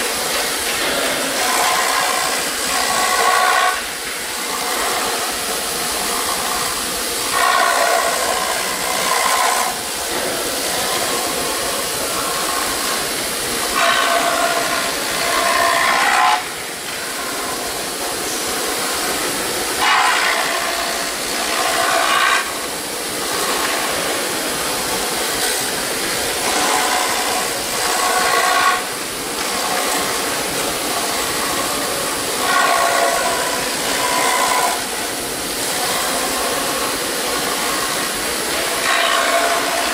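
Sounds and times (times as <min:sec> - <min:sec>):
router spindle high whine: 0:07.3 - 0:19.1, 0:19.7 - 0:22.7, 0:26.2 - 0:35.2, 0:38.8 - 0:39.9.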